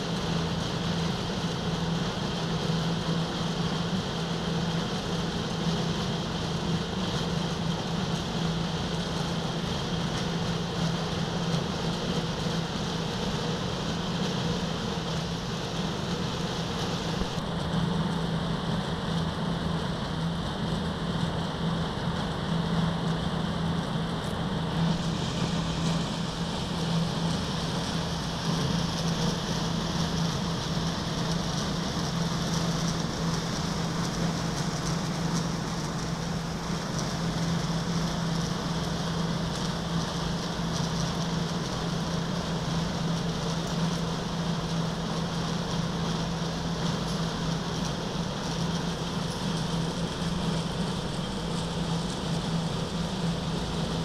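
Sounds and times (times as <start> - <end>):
milling machine running: 24.2 - 54.0.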